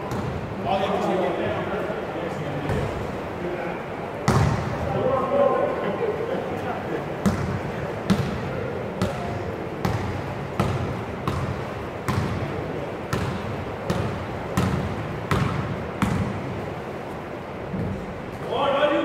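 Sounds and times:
basketball bouncing on court floor: 0:00.0 - 0:00.4, 0:04.3 - 0:04.7, 0:07.2 - 0:08.4, 0:09.0 - 0:12.5, 0:13.1 - 0:16.5.

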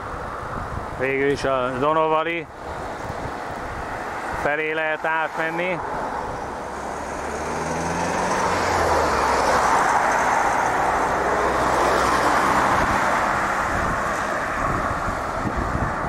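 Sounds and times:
vehicle passing close by: 0:05.3 - 0:16.0.

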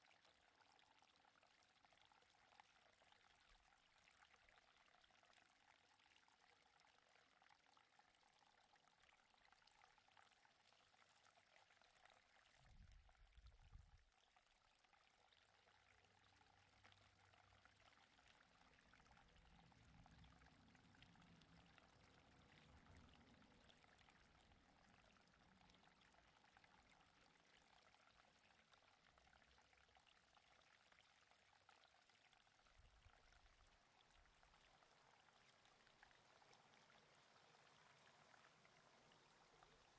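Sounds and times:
faint outdoor hiss: 0:15.5 - 0:39.9.

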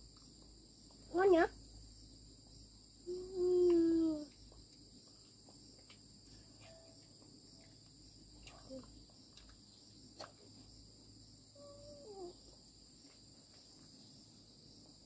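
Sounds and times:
insects chirring: 0:00.0 - 0:15.0
faint ticks and rustles: 0:03.6 - 0:10.9, 0:12.3 - 0:15.0.

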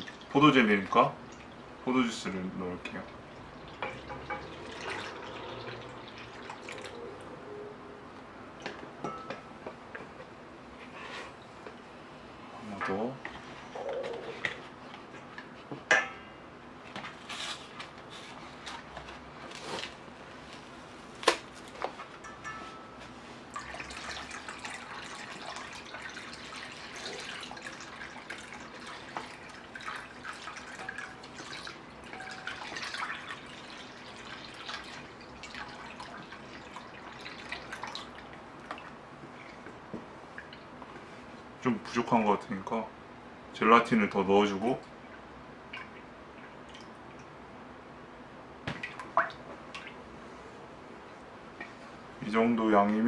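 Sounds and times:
liquid sloshing and splashing: 0:03.1 - 0:07.2, 0:23.4 - 0:40.8, 0:48.7 - 0:50.2.

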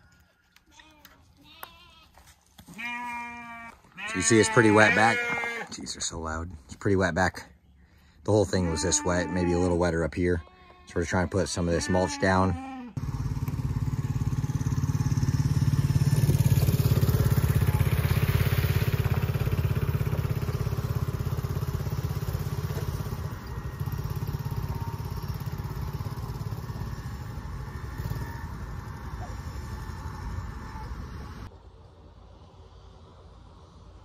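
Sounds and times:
small atv engine running: 0:13.0 - 0:31.5.

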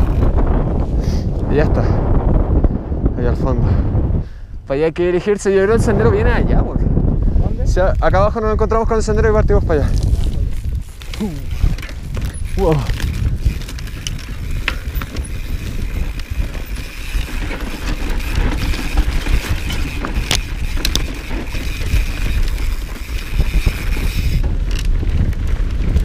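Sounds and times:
bike frame rattling: 0:00.0 - 0:01.0, 0:09.7 - 0:26.0
wind rumble on microphone: 0:00.0 - 0:26.0.

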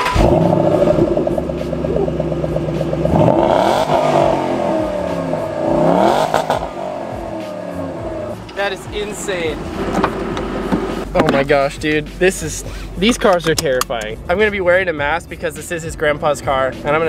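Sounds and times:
car engine revving: 0:00.0 - 0:13.2.

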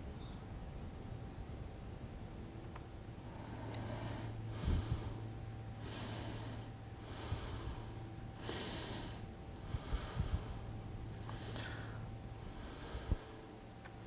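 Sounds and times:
low electrical hum: 0:00.0 - 0:14.0
man breathing close to microphone: 0:03.2 - 0:13.6.

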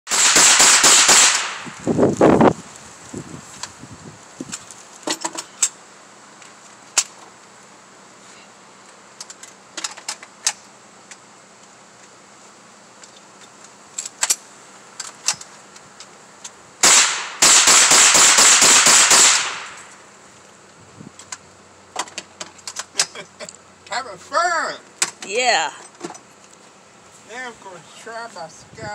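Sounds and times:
rapid rifle shots: 0:00.1 - 0:01.6, 0:16.8 - 0:19.9
faint single gunshots: 0:16.8 - 0:19.9.

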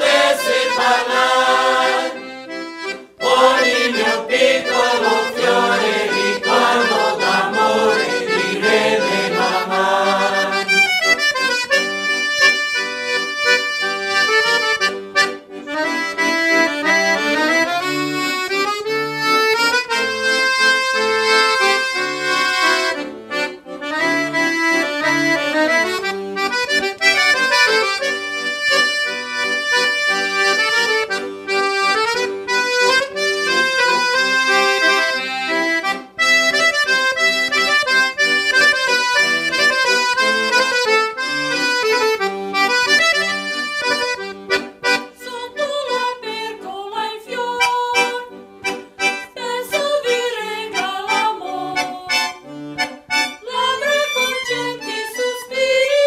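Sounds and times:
choir singing: 0:00.0 - 0:02.6, 0:03.2 - 0:11.1, 0:54.9 - 0:56.0
accordion playing lively tune: 0:00.0 - 0:56.0.

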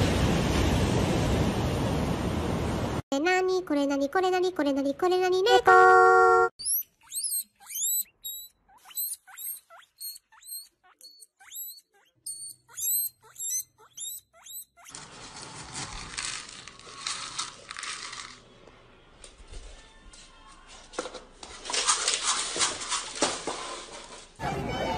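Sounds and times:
guinea pig wheeking: 0:06.6 - 0:15.0, 0:24.4 - 0:24.9.

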